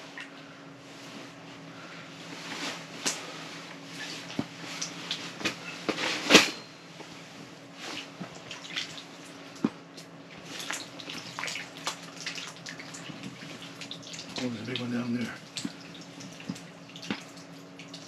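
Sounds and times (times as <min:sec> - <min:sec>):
faint steady hum: 0:00.0 - 0:18.0
water splashing and dripping: 0:10.7 - 0:18.0.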